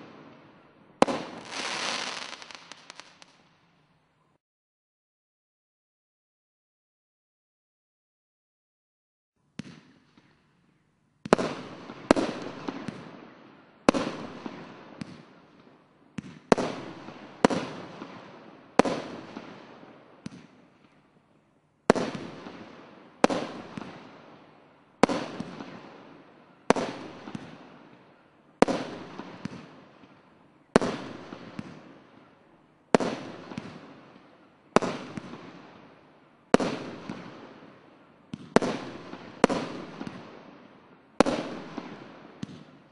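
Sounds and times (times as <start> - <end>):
firework cake sharp bangs: 1.0 - 3.4, 21.9 - 24.1, 25.0 - 28.0, 33.0 - 35.9, 36.6 - 40.4, 41.2 - 42.9.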